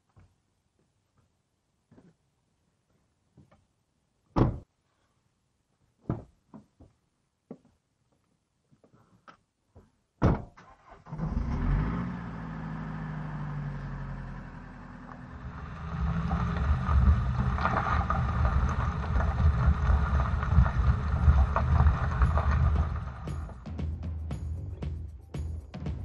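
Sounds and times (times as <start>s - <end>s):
door slamming shut: 4.4s - 4.7s, 10.2s - 10.6s
van engine starting and running: 10.6s - 26.0s
tyres crunching over gravel: 15.0s - 23.7s.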